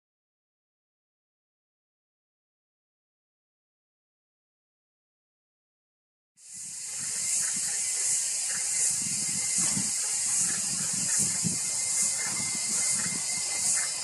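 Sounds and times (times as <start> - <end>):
pulsing insect chorus hiss: 6.4 - 14.0.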